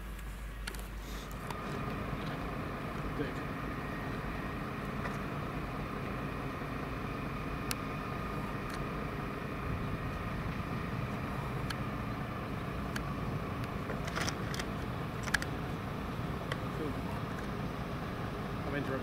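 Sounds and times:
faint high whine: 0.0 - 19.0
fire engine drone: 0.0 - 19.0
sharp clicks: 12.8 - 15.6.

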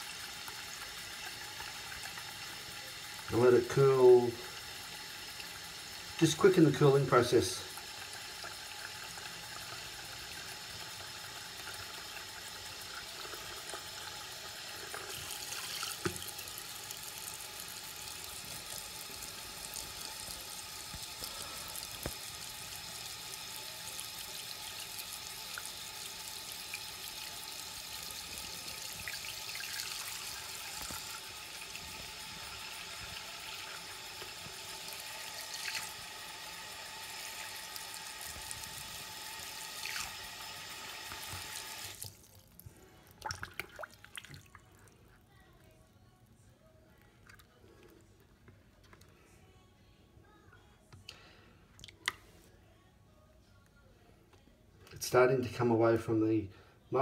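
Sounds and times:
tap water splashing into sink: 14.9 - 16.5, 22.0 - 22.3, 28.9 - 31.9, 34.1 - 36.0, 39.8 - 40.2, 43.2 - 44.6.

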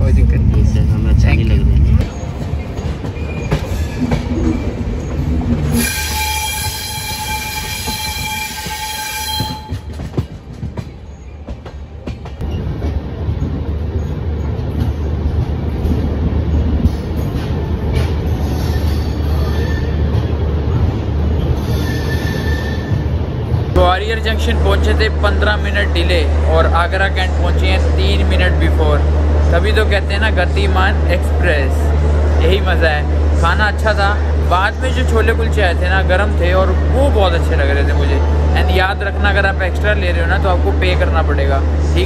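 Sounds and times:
train running gear rumbling: 0.0 - 42.0
train horn: 5.8 - 10.0.

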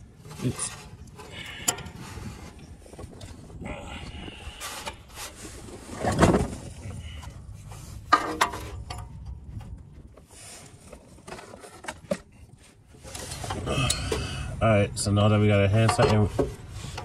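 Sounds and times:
light metallic clicks and scrapes: 15.8 - 17.0.

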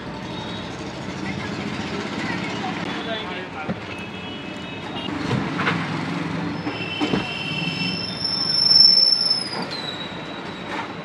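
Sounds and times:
street noise: 0.0 - 11.0
high-pitched squeal: 6.6 - 10.6.

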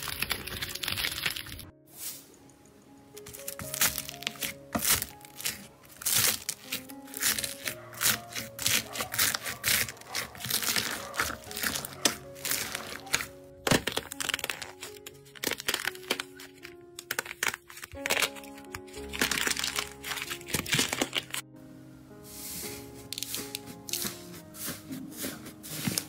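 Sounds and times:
slime crust cracking: 0.0 - 1.7, 3.1 - 21.4
background music: 0.0 - 26.0
slime crackling pops: 3.2 - 21.4.

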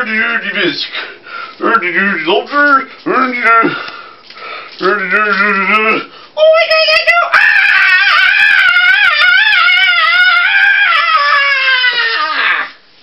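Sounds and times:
man's falsetto squeal: 7.3 - 12.8.

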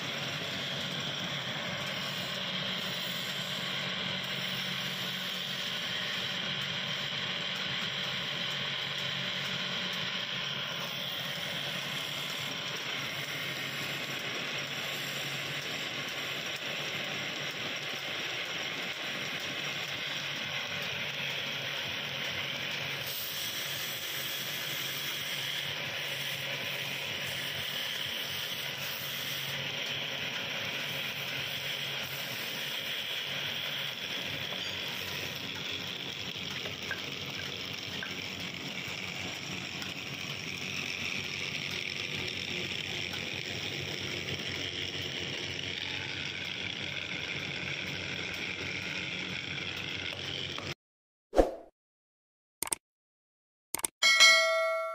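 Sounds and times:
lathe humming: 0.0 - 22.4, 24.6 - 50.7.

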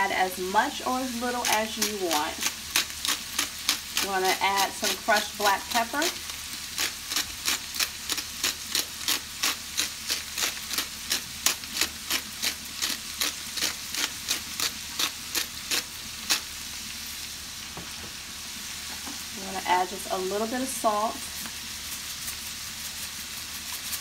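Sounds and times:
vegetables sizzling in a frying pan: 0.0 - 24.0.

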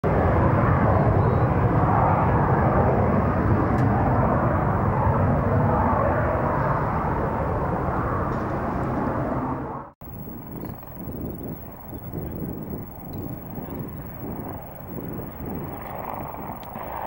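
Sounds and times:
helicopter rotor rumble: 10.0 - 17.0.

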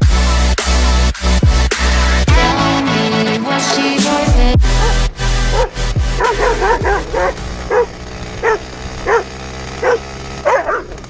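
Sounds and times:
moped engine running: 1.5 - 11.0
dog barking: 4.7 - 10.9.

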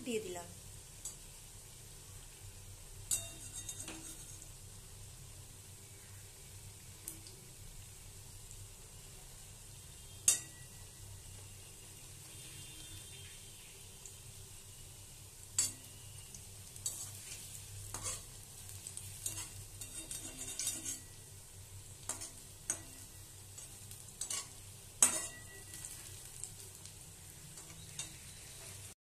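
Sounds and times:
fritters sizzling in oil: 0.0 - 29.0
spatula scraping and knocking pan: 3.1 - 4.5, 16.8 - 18.3, 18.9 - 21.2, 22.0 - 26.5.

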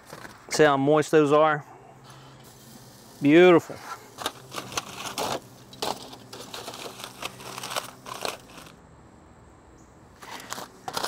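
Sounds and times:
aluminium foil crinkling: 3.8 - 8.8, 10.2 - 11.0.

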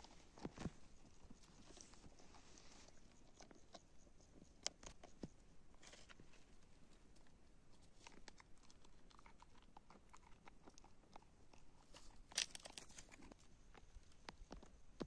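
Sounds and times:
goat chewing plants: 5.8 - 14.6.

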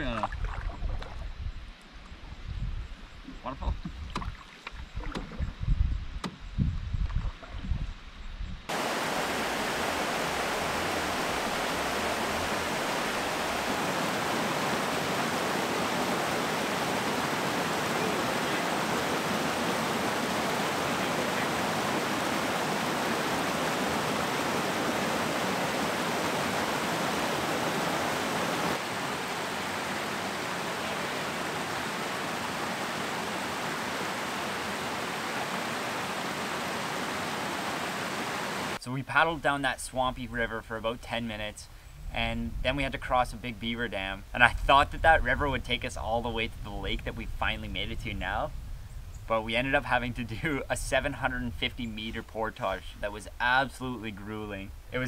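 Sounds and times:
canoe knocks and thumps: 3.7 - 5.6
waterfall rushing: 8.7 - 38.8.

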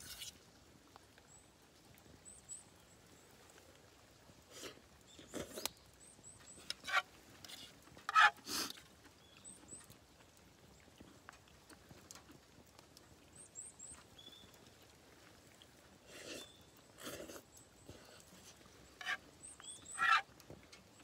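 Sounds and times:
noodles slurped: 4.6 - 5.8, 16.0 - 19.2.

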